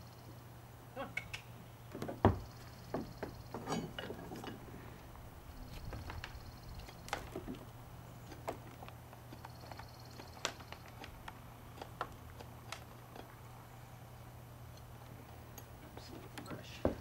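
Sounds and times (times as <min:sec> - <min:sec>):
steady low hum: 0:00.0 - 0:17.0
clicks and knocks of hoof trimming: 0:01.2 - 0:04.6, 0:05.7 - 0:13.5, 0:14.7 - 0:17.0.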